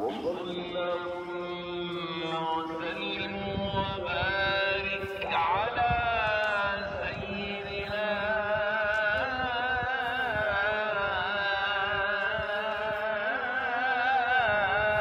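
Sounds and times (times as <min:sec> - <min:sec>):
man chanting melodic line: 0:00.1 - 0:05.8.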